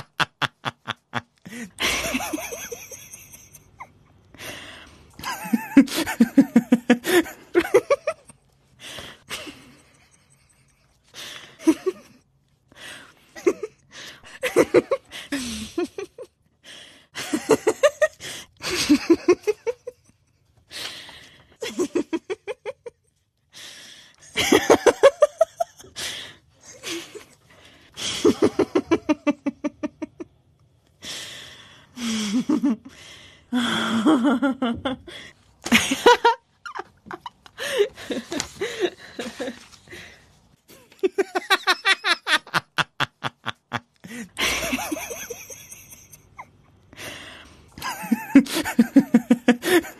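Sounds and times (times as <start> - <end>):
people laughing: 0.0 - 3.9, 5.2 - 8.4, 40.7 - 46.5, 47.8 - 49.9.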